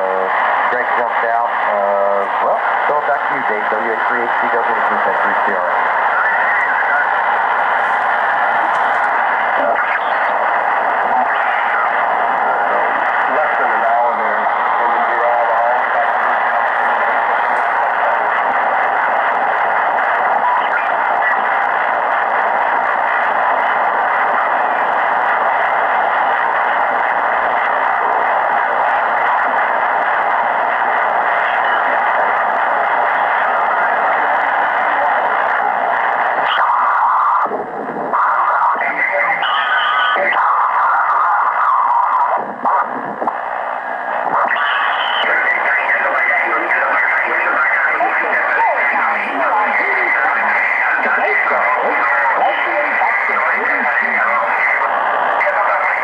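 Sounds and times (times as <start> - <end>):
garbled radio voice: 0.0 - 56.0
radio static: 0.0 - 56.0
faint radio whistles: 33.1 - 43.5, 44.2 - 55.9.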